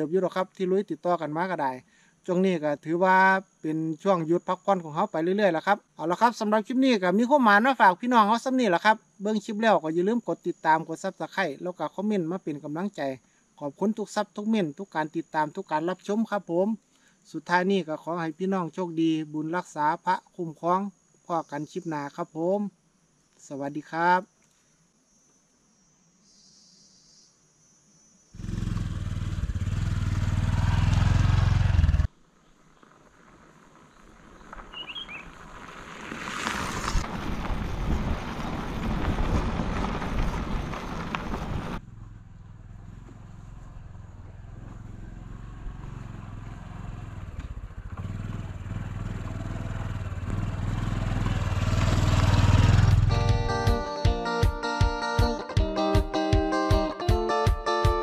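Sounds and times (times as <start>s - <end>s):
motorcycle engine rumble: 28.4s - 32.1s, 32.8s - 54.2s.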